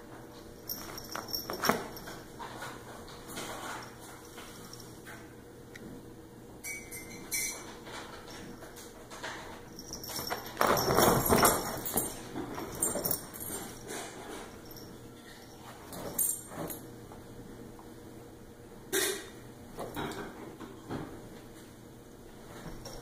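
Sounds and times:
animals scuffling on cushions: 0.5s - 5.0s, 9.5s - 16.9s, 22.3s - 23.0s.

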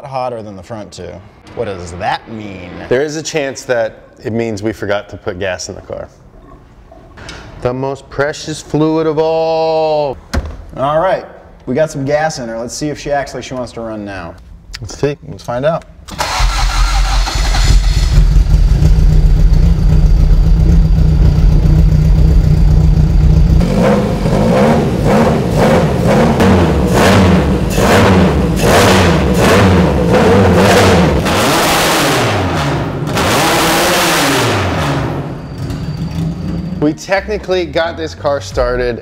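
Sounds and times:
car engine idling and revving: 16.2s - 36.7s.

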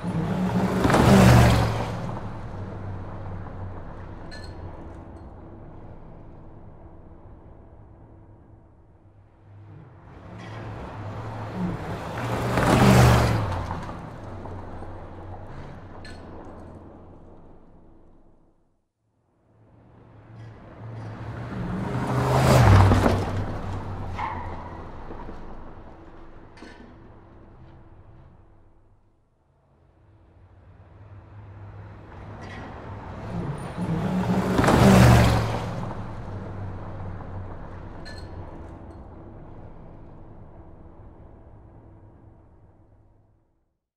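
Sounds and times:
car speeding past: 0.0s - 4.0s, 9.4s - 16.0s, 20.1s - 26.0s, 31.2s - 38.0s.

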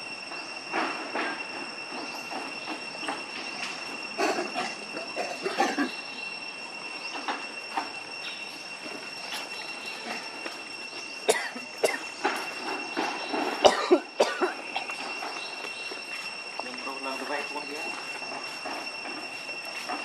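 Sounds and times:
cicadas droning: 0.0s - 20.0s
monkeys grunting: 4.2s - 6.0s.

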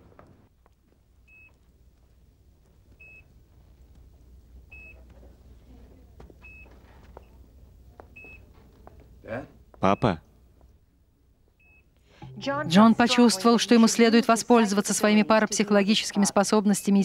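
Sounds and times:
patient monitor beeping: 3.0s - 3.4s, 4.7s - 5.1s, 6.4s - 7.4s, 8.1s - 8.5s, 9.8s - 10.4s, 11.6s - 13.9s, 15.9s - 17.0s
low steady hum: 9.1s - 14.5s.

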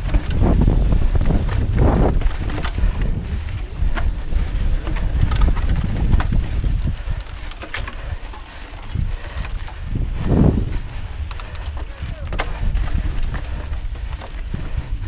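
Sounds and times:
tyre rumble on dirt: 0.0s - 6.9s
bike rattling over rocks: 0.0s - 15.0s
wind buffeting microphone: 0.0s - 15.0s.

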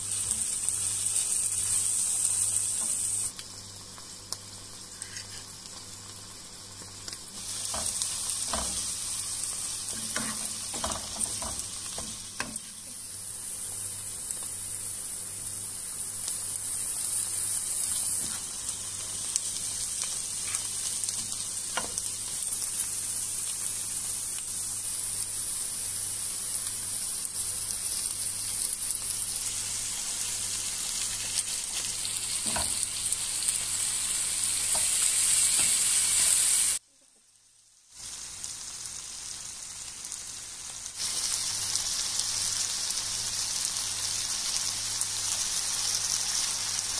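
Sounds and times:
onions sizzling in oil: 0.0s - 46.9s
spatula stirring and knocking pan: 7.7s - 9.0s, 9.9s - 12.9s.

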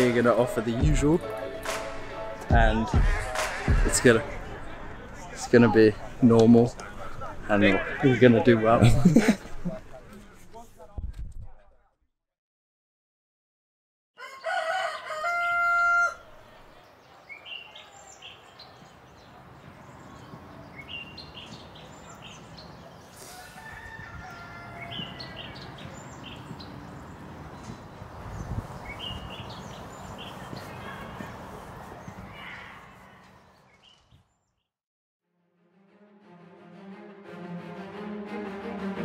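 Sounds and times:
birds chirping: 0.0s - 10.6s, 14.2s - 34.7s
rooster crowing: 14.2s - 16.5s, 23.2s - 25.7s.

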